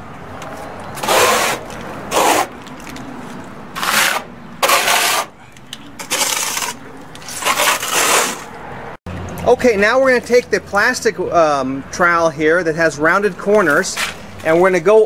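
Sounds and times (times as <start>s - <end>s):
trowel scraping wet cement: 1.0s - 8.5s.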